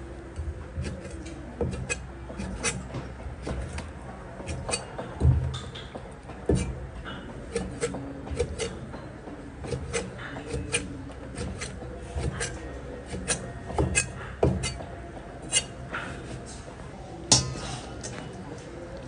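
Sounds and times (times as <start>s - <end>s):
cleaver chopping on plastic board: 0.8s - 3.8s, 4.4s - 5.4s, 7.5s - 8.8s, 9.6s - 14.8s.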